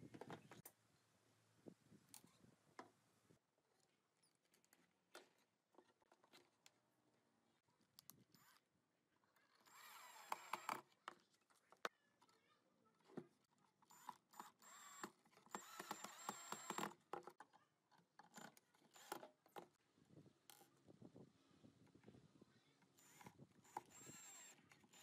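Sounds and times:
cordless drill motor whine: 9.6s - 10.8s, 13.9s - 16.9s, 18.4s - 19.3s, 22.9s - 25.0s.

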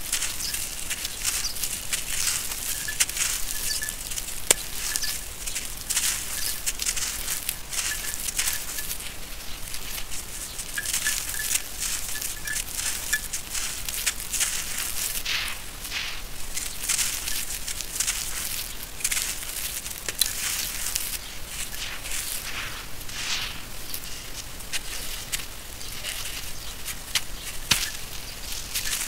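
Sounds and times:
grit pouring onto sandy floor: 13.8s - 25.5s.

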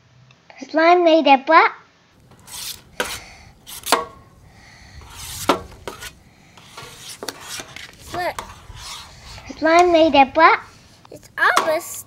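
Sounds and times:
metal spoon scraping steel pan: 2.3s - 11.8s.

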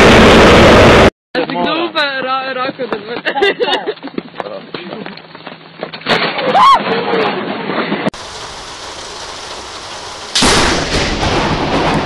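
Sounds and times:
thunderclap: 0.0s - 1.1s, 8.2s - 12.0s
wind hiss: 8.2s - 11.4s
steady rain: 8.2s - 12.0s.

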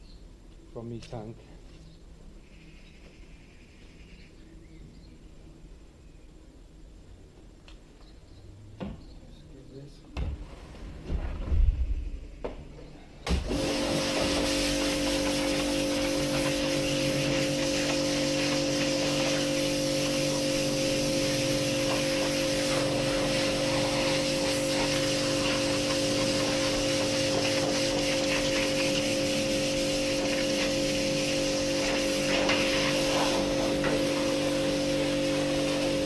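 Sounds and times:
pressure washer pump hum: 13.3s - 36.0s
water jet hissing on steel: 13.3s - 36.0s.

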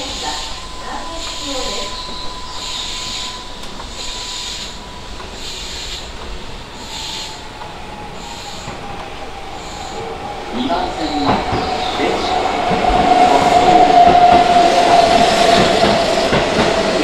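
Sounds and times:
high pulsing tone: 0.0s - 8.7s
steady train whine: 0.0s - 17.0s
train rail rumble: 0.0s - 17.0s.

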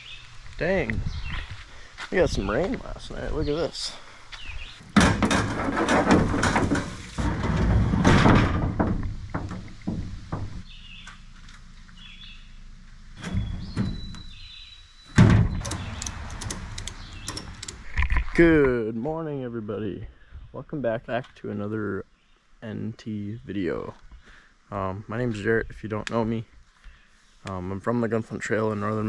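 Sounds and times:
rustling and knocking: 4.9s - 11.5s
canoe landing thunk: 5.0s - 10.6s, 15.2s - 15.6s.

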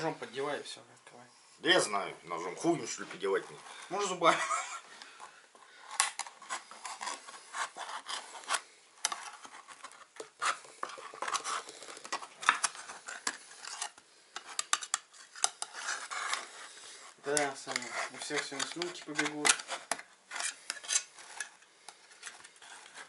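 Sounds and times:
knife scraping metal tin: 12.4s - 23.0s.

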